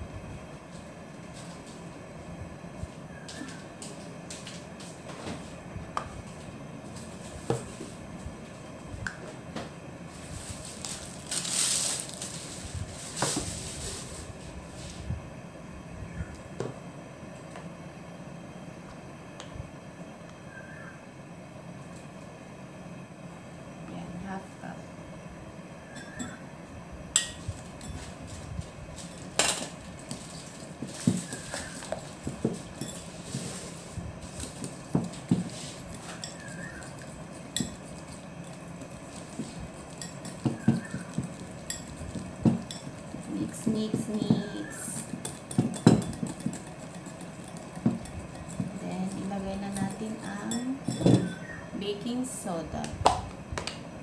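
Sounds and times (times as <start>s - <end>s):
rustling scrape: 10.1s - 15.1s, 27.4s - 45.0s
spoon and cup knocks: 40.4s - 41.3s.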